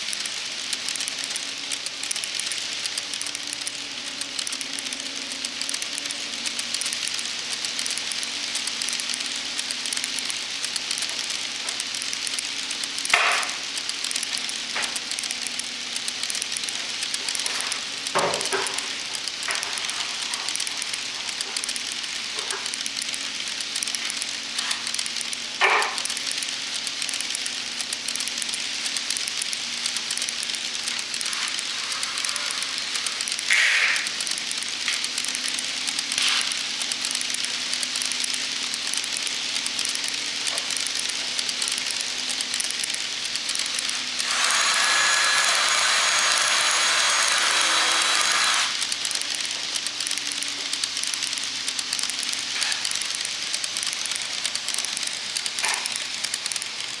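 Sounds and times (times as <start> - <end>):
model train wheels rattling: 0.0 - 57.0
hiss: 28.1 - 57.0.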